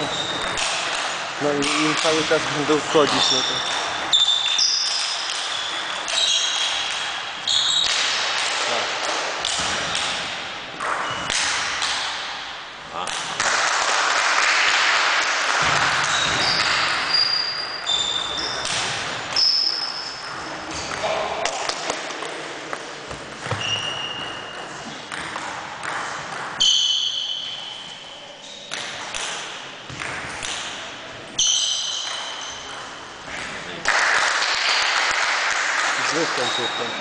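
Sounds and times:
sports shoes squeaking on floor: 0:00.0 - 0:00.7, 0:02.4 - 0:08.8, 0:10.8 - 0:11.4, 0:15.6 - 0:20.9, 0:23.1 - 0:25.2, 0:26.6 - 0:29.0, 0:31.4 - 0:33.6, 0:36.1 - 0:37.0.

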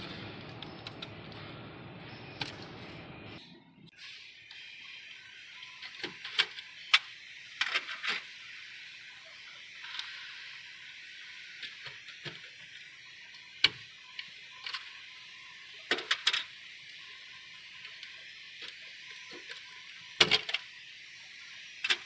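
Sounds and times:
steady hiss: 0:05.8 - 0:13.4, 0:16.7 - 0:22.0.

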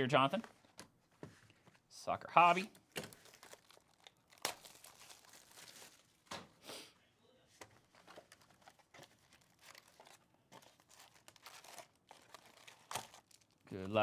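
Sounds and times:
cardboard box and foil packs rustling: 0:02.6 - 0:06.2, 0:07.8 - 0:13.6
plastic shrink wrap tearing: 0:03.0 - 0:06.2, 0:08.3 - 0:13.7.

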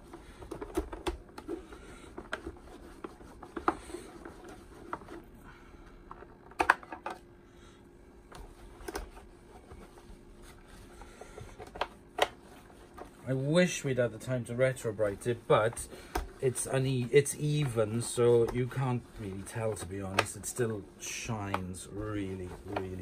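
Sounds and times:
clicks and knocks of handling: 0:00.1 - 0:05.2, 0:06.0 - 0:07.3, 0:08.3 - 0:09.8, 0:11.0 - 0:13.2, 0:17.5 - 0:20.6, 0:21.4 - 0:23.0
cloth rubbing on plastic: 0:01.2 - 0:05.4, 0:08.4 - 0:23.0.

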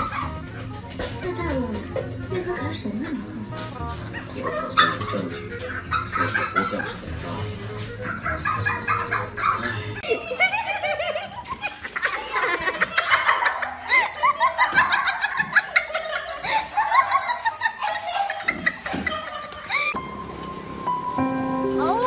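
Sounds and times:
people laughing hard: 0:04.0 - 0:20.0.

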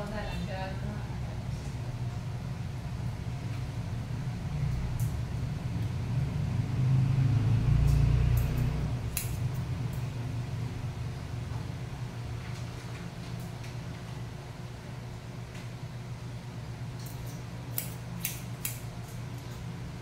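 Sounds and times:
scissors snipping wet hair: 0:07.8 - 0:10.0, 0:17.0 - 0:19.6.

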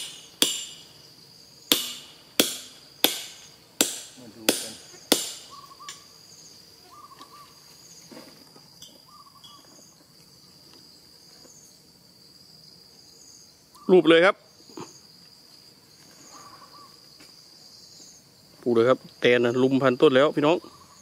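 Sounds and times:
pegs hammered into tree trunk: 0:00.0 - 0:00.8, 0:01.7 - 0:06.0
insects trilling: 0:00.0 - 0:21.0.

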